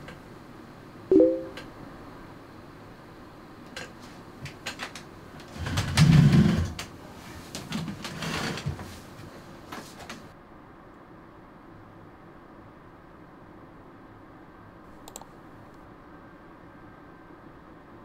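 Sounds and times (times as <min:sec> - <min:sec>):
rustling as man sits in chair: 0:05.4 - 0:10.3
light clicks: 0:15.0 - 0:15.3.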